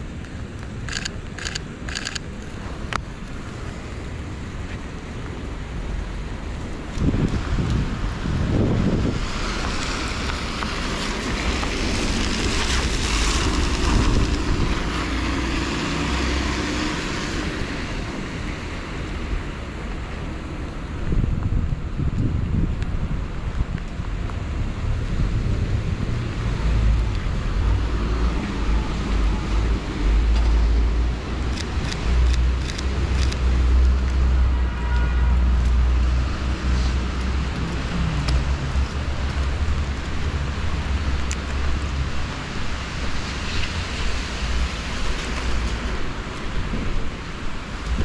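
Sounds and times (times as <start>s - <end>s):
traffic noise: 0.0s - 48.0s
wind rumble on microphone: 0.0s - 48.0s
car tyres hissing on wet road: 2.7s - 20.4s, 33.6s - 48.0s.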